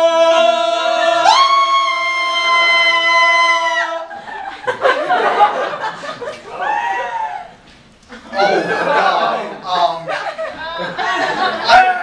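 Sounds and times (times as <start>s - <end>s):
voices singing a long chord: 0.0s - 2.4s
laughter: 4.1s - 6.6s, 8.1s - 11.8s.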